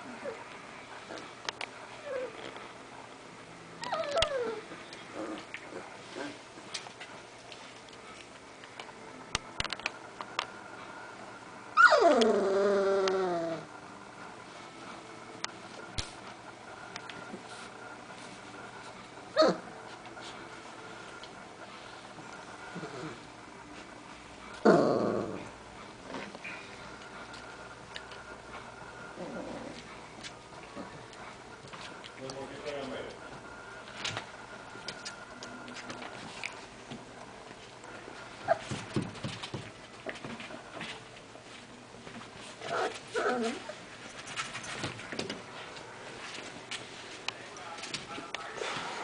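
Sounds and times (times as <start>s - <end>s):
puppy crying: 3.8s - 4.6s, 11.8s - 13.7s, 19.3s - 19.7s
puppy growl: 3.8s - 6.5s, 11.8s - 13.7s, 19.3s - 19.7s, 22.7s - 23.3s, 24.5s - 26.3s, 29.1s - 31.1s, 42.6s - 43.8s.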